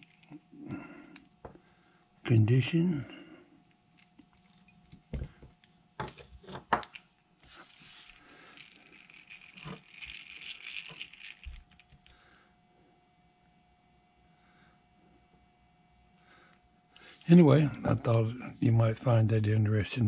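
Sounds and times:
hand drill gears clicking rapidly: 8.4 - 11.9.

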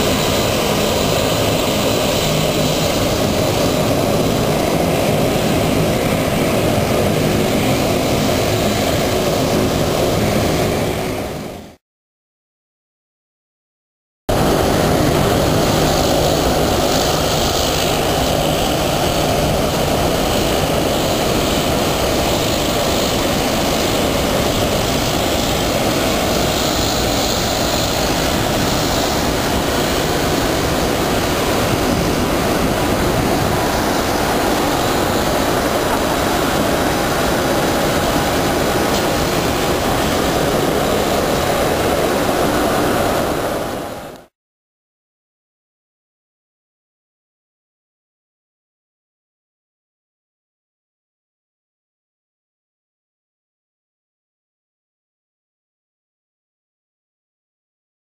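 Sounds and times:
jet engine rushing: 0.0 - 11.8, 14.3 - 44.3.

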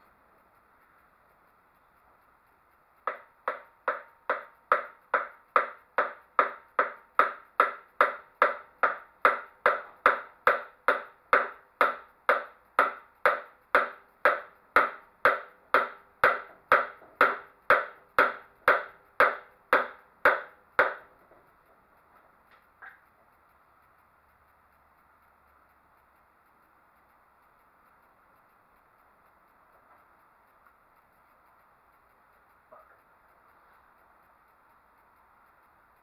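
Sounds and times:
hammer blows on metal: 3.1 - 21.1.

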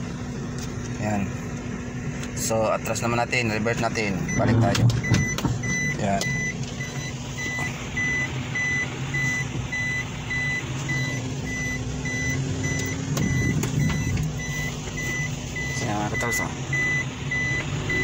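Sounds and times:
car engine running: 0.0 - 18.0
reverse warning beeper: 3.7 - 18.0.

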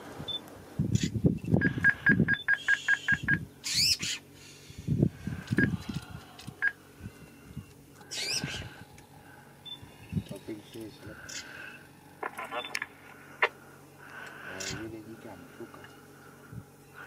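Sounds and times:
birds calling: 0.9 - 17.0
high bird whistle: 1.8 - 4.2.

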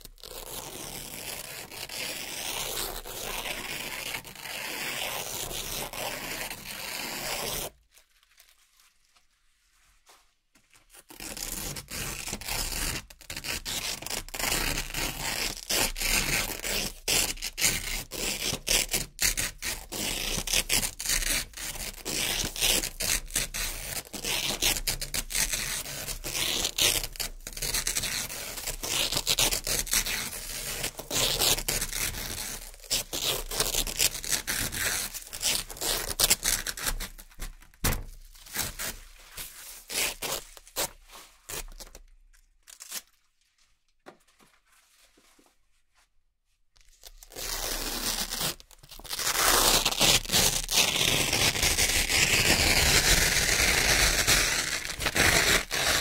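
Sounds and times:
velcro strips ripping: 0.0 - 7.7, 10.9 - 43.3, 46.8 - 56.0.

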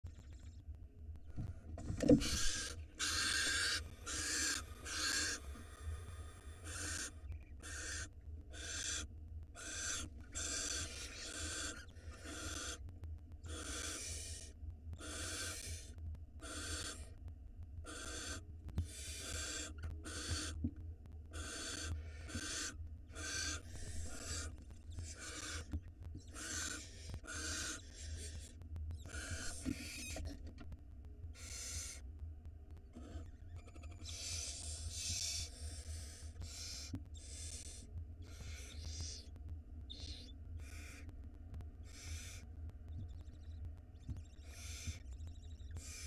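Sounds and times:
steady low hum: 0.0 - 46.0
owl chicks rasping hiss calls: 0.1 - 0.6, 2.2 - 17.2, 17.8 - 20.6, 21.3 - 30.4, 31.3 - 32.1, 32.9 - 41.2, 41.8 - 46.0.

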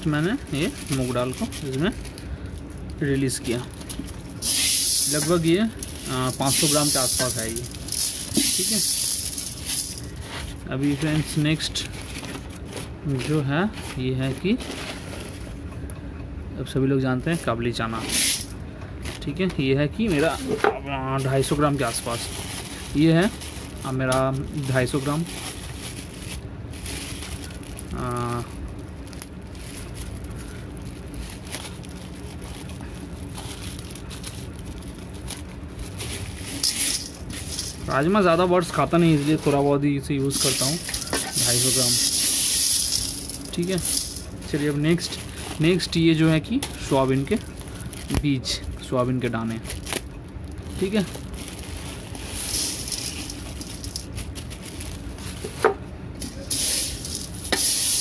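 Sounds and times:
plastic packet crinkling and tearing: 0.0 - 15.6, 21.1 - 55.6
dried beans pouring into metal pot: 4.4 - 10.2, 36.4 - 38.2, 40.3 - 46.1, 51.6 - 54.9, 56.2 - 58.0
hand stirring dry grains: 4.4 - 11.2, 36.0 - 39.6, 40.3 - 47.9, 50.8 - 55.6, 56.2 - 58.0.

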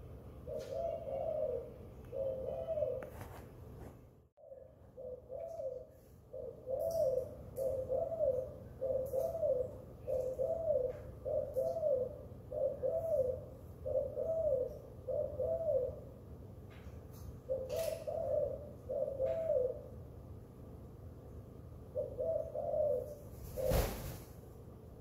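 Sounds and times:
doves cooing: 0.4 - 3.3, 4.4 - 16.2, 17.5 - 20.0, 21.9 - 24.2.

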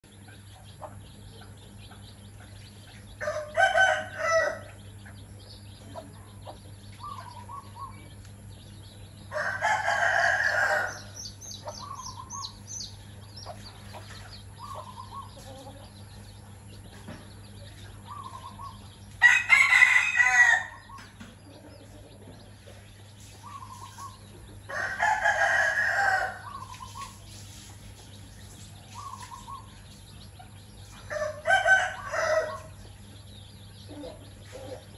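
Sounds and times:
chicks peeping: 0.0 - 34.9
rooster crowing: 3.2 - 4.7, 9.3 - 11.2, 19.2 - 21.0, 24.7 - 26.6, 31.1 - 32.7
hens clucking softly: 11.6 - 16.2, 33.9 - 34.9.

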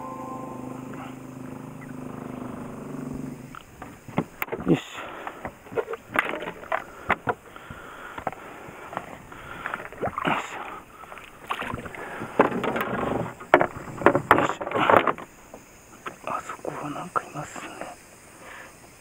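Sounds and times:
water slapping against boat hull: 3.6 - 16.2
knocks and clatter on deck: 12.4 - 15.3.

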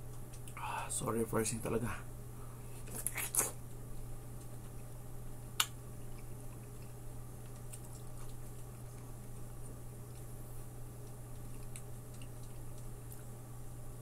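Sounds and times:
wet chewing of melon: 2.8 - 3.7, 5.9 - 13.3.

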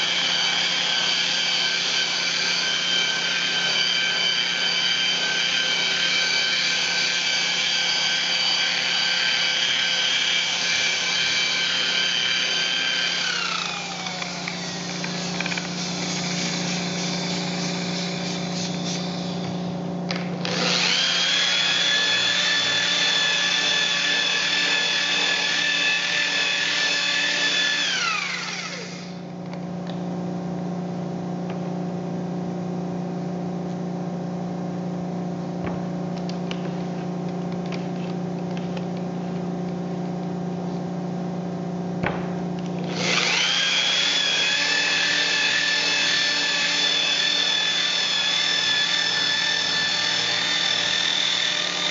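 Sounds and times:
electric polisher motor whine: 0.0 - 29.2, 42.1 - 51.9.

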